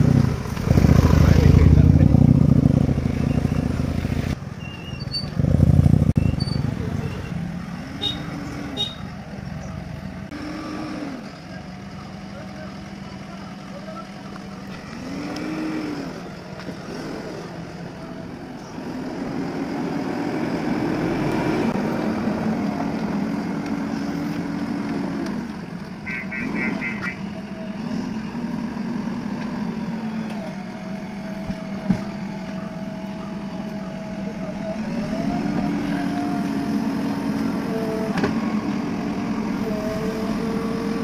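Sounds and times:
backhoe diesel engine revving: 0.0s - 41.0s.

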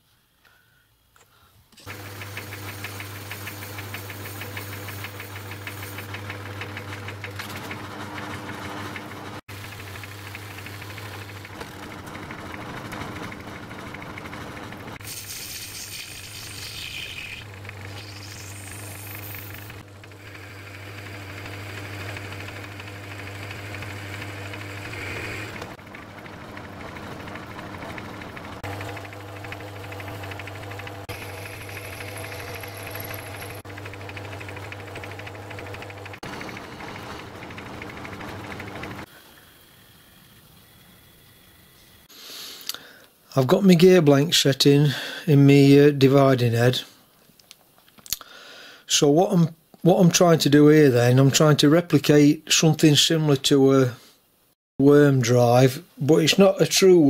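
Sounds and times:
lathe motor humming: 1.8s - 15.0s, 16.8s - 39.8s
metal cutting noise: 1.8s - 39.1s
thin rising whine: 24.5s - 42.1s.

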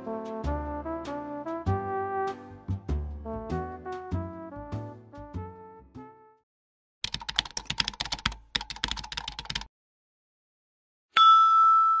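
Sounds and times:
rapid keyboard typing: 7.0s - 9.7s.

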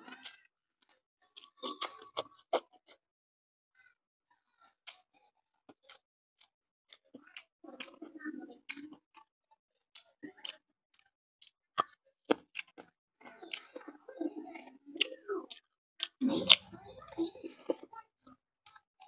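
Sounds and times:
person chewing with wet smacking: 0.1s - 3.0s, 5.7s - 9.3s, 9.9s - 17.9s.

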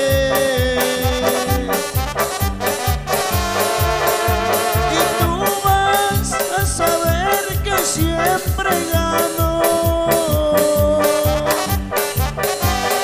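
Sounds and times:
live band music: 0.0s - 13.0s.

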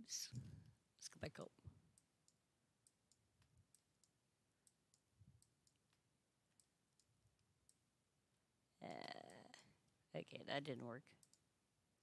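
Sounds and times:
computer mouse clicks: 1.9s - 7.8s, 11.1s - 11.5s.

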